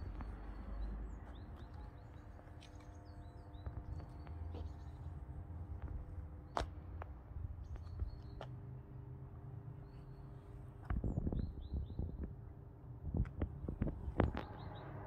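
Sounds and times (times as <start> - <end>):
small birds chirping: 0.0 - 8.7, 9.7 - 12.4, 13.7 - 15.0
steady low rumble: 0.0 - 9.8, 10.4 - 15.0.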